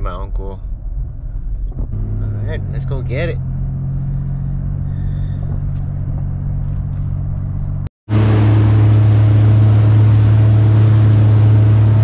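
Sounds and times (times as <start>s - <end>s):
car road noise and engine hum: 0.0s - 12.0s
boat engine running at speed: 8.1s - 12.0s.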